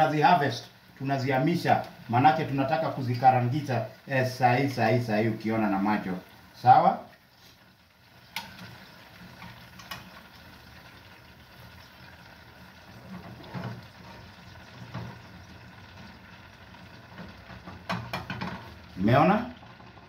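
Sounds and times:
metal spoon knocking on pan: 17.9 - 18.6.

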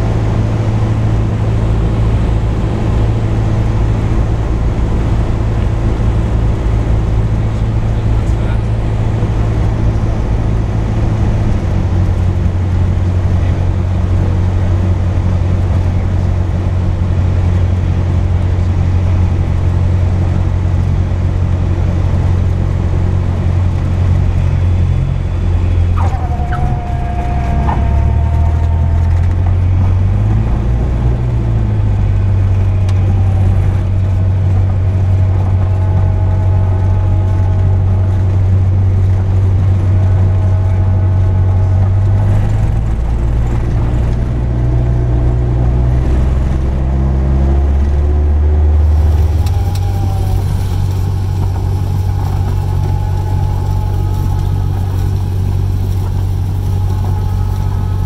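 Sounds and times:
propeller engine droning: 0.0 - 58.0
whistling tone sliding down: 26.0 - 29.8.

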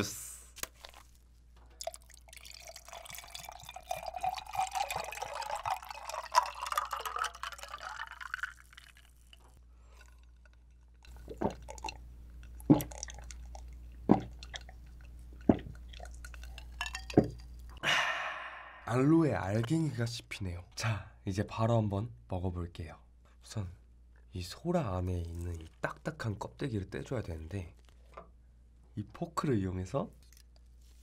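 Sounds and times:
liquid pouring into glass: 1.8 - 17.9, 25.1 - 26.0
person gulping: 1.8 - 18.9.

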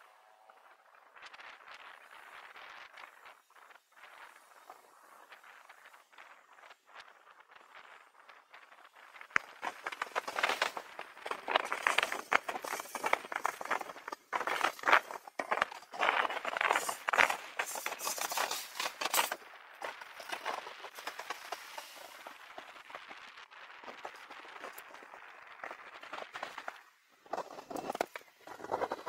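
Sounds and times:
bicycle rattling and clicking: 7.5 - 29.0.

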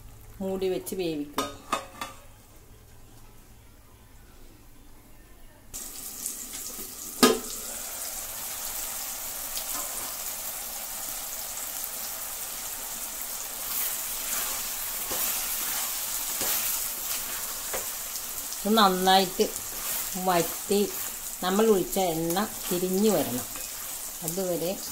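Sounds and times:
curry bubbling and sizzling in pot: 5.8 - 24.9
wooden spatula scraping pan: 13.6 - 18.0, 19.3 - 24.0.

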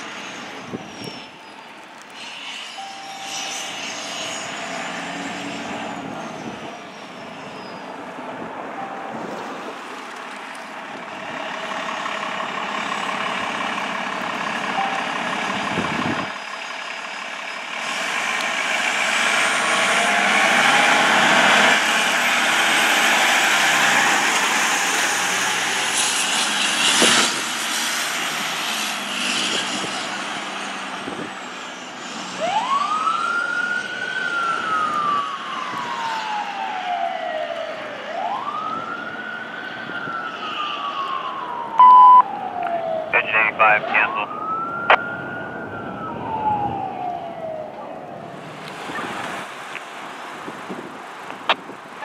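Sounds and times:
fire engine diesel engine: 0.0 - 52.0
siren wailing: 2.7 - 7.4, 14.7 - 16.4, 32.4 - 48.2.

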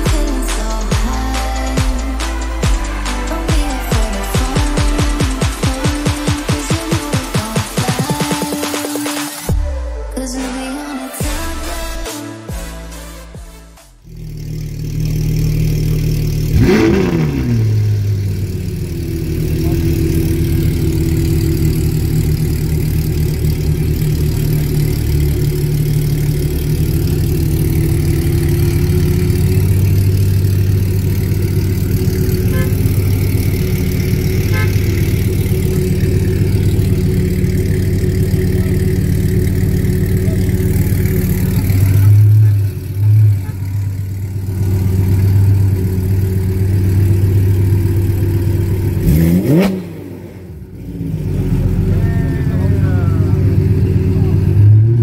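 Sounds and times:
car engine idling: 0.0 - 10.0, 13.9 - 55.0
engine throttle blips: 14.0 - 55.0.

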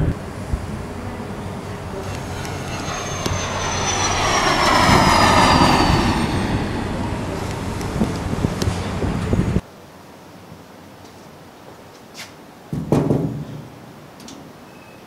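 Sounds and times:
airplane passing overhead: 0.0 - 9.6
high whine falling in pitch: 0.0 - 9.6.

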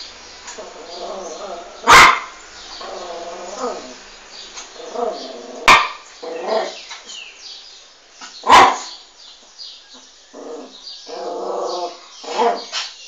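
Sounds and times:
small dog barking: 0.5 - 2.4, 5.1 - 6.8, 8.4 - 9.1.

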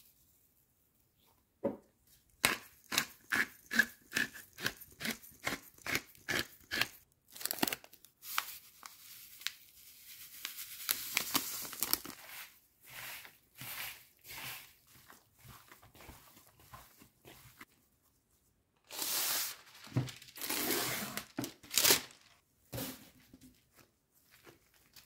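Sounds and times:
plastic sachet crinkling and tearing: 7.3 - 12.2, 18.9 - 22.4.

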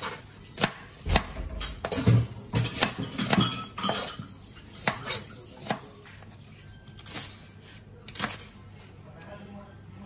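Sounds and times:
knife slicing onion on board: 0.0 - 6.0.

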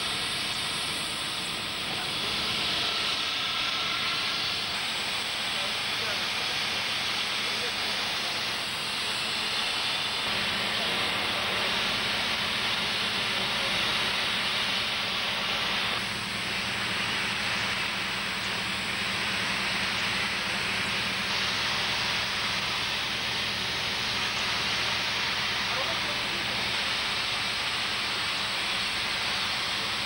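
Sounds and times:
abrasive blasting hiss: 0.0 - 30.0.

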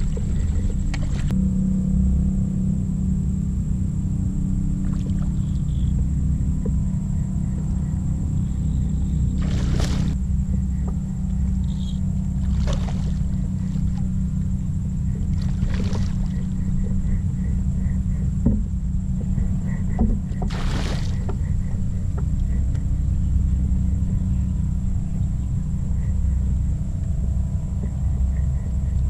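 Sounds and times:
wind rumble on microphone: 0.0 - 29.0
fish splashing at surface: 9.4 - 10.2, 12.4 - 13.3, 15.4 - 16.3, 20.5 - 21.2.

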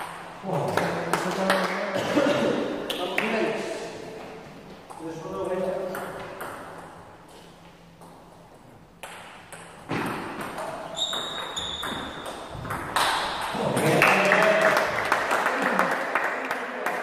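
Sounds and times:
shoe squeaking on floor: 10.7 - 12.6.

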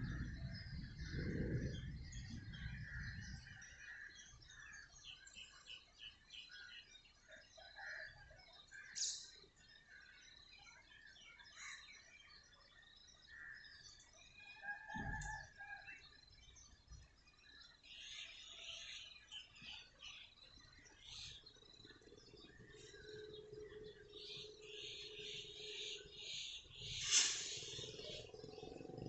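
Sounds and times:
small birds chirping: 0.0 - 7.5, 15.0 - 29.0.

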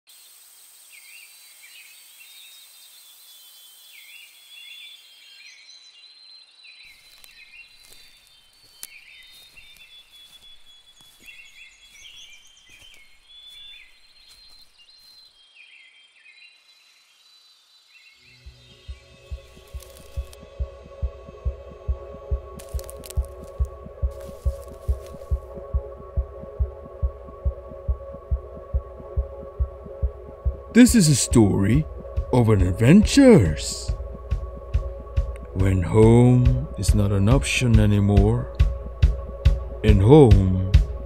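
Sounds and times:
high insect drone: 0.1 - 5.4, 16.6 - 26.6.

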